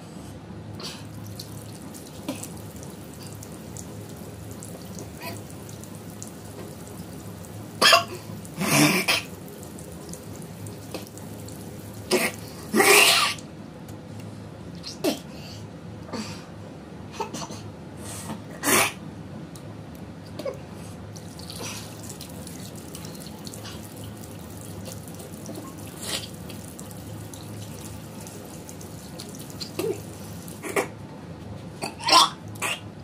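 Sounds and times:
woman gagging and retching: 0:07.8 - 0:09.4, 0:12.1 - 0:13.4, 0:29.6 - 0:31.0, 0:31.8 - 0:32.9.

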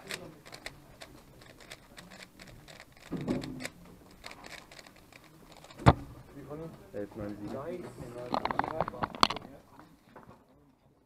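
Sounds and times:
puzzle cube plastic clicks: 0:00.0 - 0:06.0, 0:08.2 - 0:09.5.

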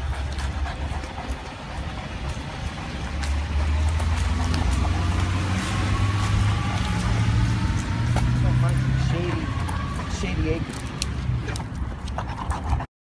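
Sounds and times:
vehicle engine running: 0:00.0 - 0:11.9.

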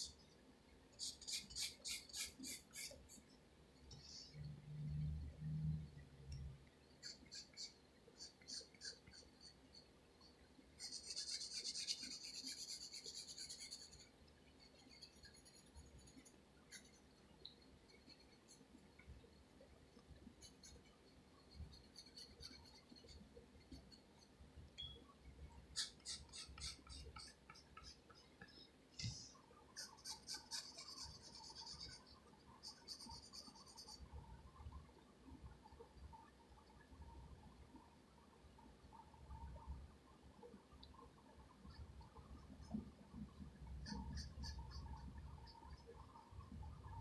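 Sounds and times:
pencil scratching on paper: 0:01.0 - 0:03.2, 0:10.8 - 0:17.0, 0:21.5 - 0:23.9, 0:25.7 - 0:28.3, 0:29.0 - 0:34.0, 0:43.8 - 0:45.8.

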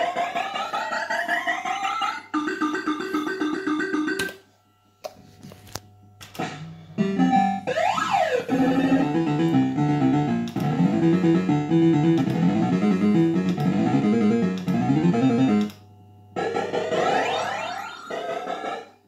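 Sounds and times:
fast synthesized tune: 0:00.0 - 0:04.4, 0:06.4 - 0:15.7
electronic pitch sweep: 0:06.4 - 0:15.7.

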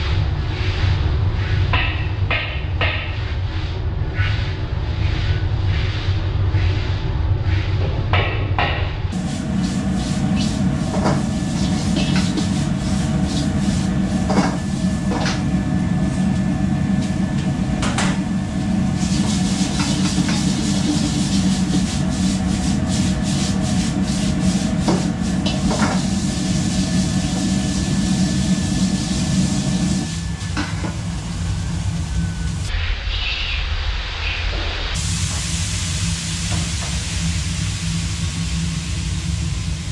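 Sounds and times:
wok burner roaring: 0:00.0 - 0:33.0, 0:33.7 - 0:39.9
food hissing in a wok: 0:18.9 - 0:30.3, 0:35.0 - 0:39.9.

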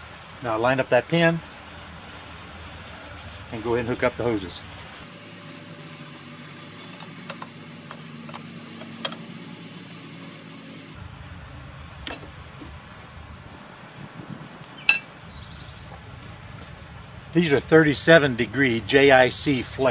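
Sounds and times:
low background hum: 0:05.0 - 0:11.7.

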